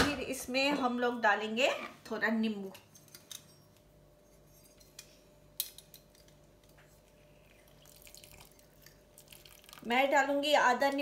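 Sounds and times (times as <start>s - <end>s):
lime juice trickling into pot: 6.3s - 10.2s.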